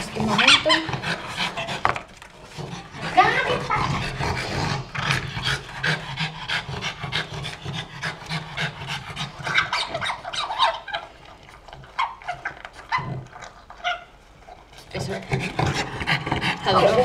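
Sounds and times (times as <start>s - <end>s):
dog panting hard: 0.0s - 13.3s, 14.8s - 17.0s.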